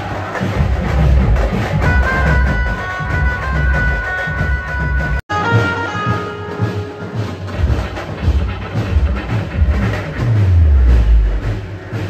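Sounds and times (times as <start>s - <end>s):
loud music with heavy bass: 7.6s - 12.0s.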